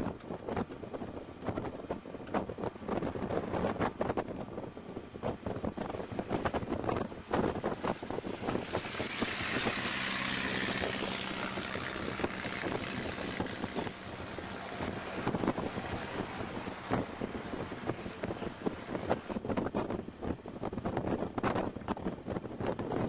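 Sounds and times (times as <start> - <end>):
car engine and road noise: 0.0 - 23.0
wind rushing over microphone: 0.0 - 23.0.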